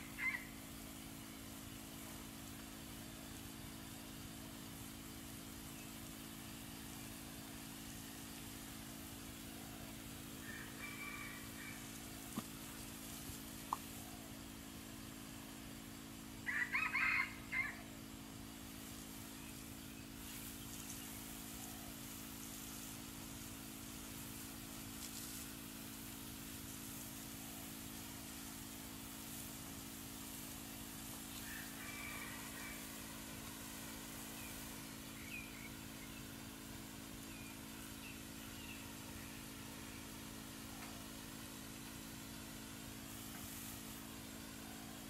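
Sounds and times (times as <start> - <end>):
steady hiss: 0.0 - 45.0
water spraying from garden hose: 0.0 - 45.0
rooster crowing: 10.4 - 12.0, 16.4 - 17.9, 31.4 - 33.2.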